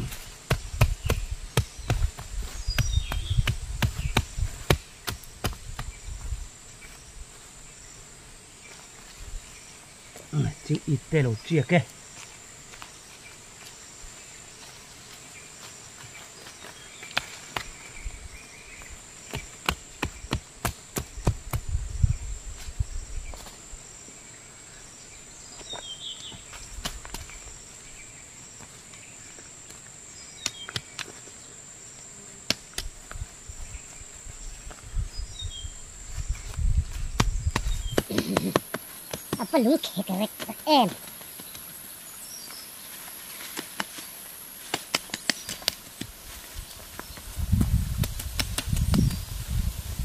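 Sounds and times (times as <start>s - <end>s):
hoe striking and scraping soil: 0.0s - 6.0s, 36.9s - 39.6s, 42.4s - 49.2s.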